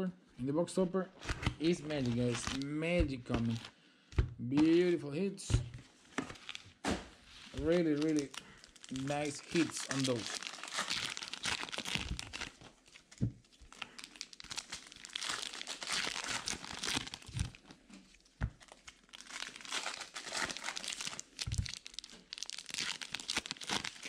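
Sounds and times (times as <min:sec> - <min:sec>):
card wrappers crinkling and tearing: 0:01.2 - 0:03.7, 0:06.0 - 0:06.8, 0:07.4 - 0:24.0.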